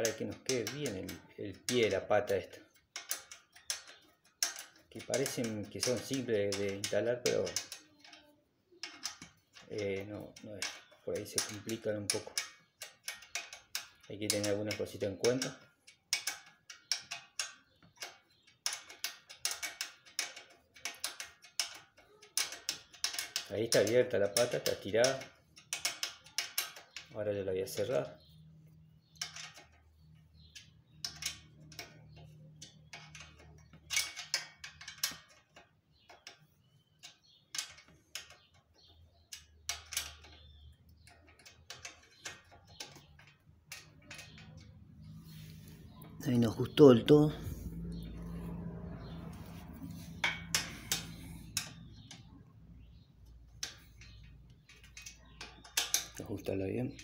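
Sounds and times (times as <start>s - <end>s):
allen key clicking on bolt: 0.0s - 28.1s
hex key metallic clicks: 29.0s - 57.0s.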